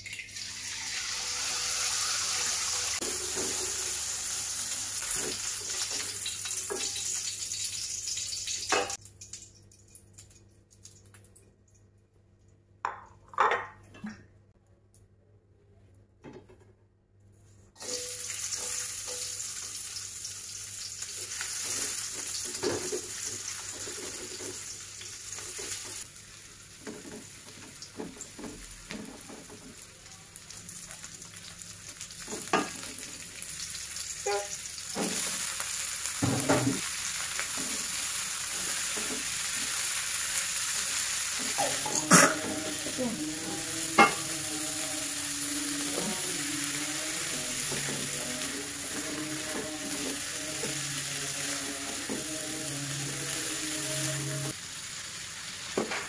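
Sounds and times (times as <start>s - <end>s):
food sizzling in oil: 0.0s - 9.0s, 17.8s - 56.0s
spatula scraping wok: 37.4s - 54.6s.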